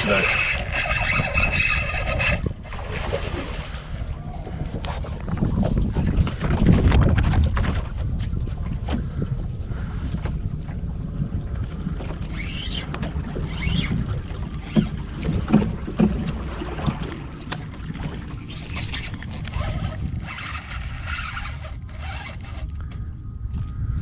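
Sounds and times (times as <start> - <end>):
high buzzing whirr: 0.0 - 2.5, 18.3 - 23.3
water and boat noise: 0.0 - 24.0
wind buffeting microphone: 0.0 - 24.0.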